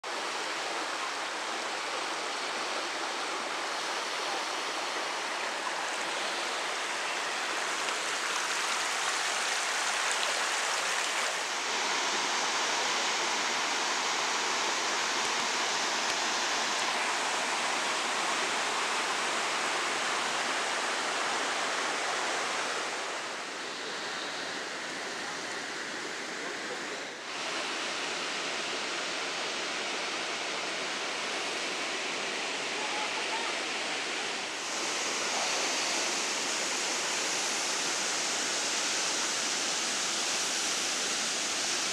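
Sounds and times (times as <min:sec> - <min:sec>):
river water rushing over rocks: 0:00.1 - 0:41.9.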